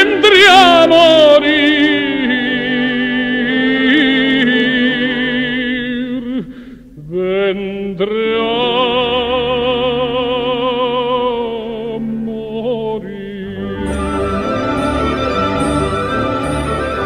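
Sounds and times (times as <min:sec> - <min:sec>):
orchestra playing slow passage: 0:13.6 - 0:17.0.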